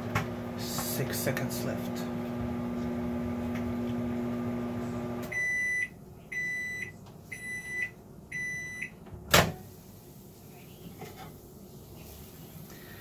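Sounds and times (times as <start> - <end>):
microwave oven humming: 0.0 - 10.3
high microwave beeps: 5.2 - 9.0.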